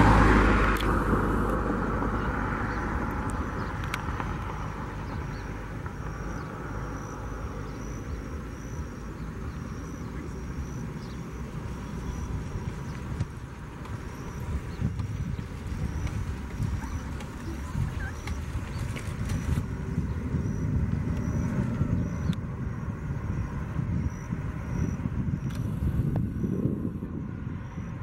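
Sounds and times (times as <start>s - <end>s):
jet engines rumbling: 0.0s - 28.0s
faint high chirp: 14.0s - 19.6s.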